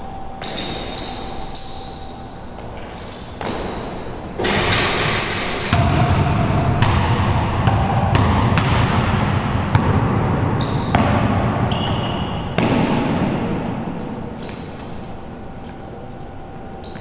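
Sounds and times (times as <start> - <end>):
basketball bouncing on hard court: 3.4 - 14.8.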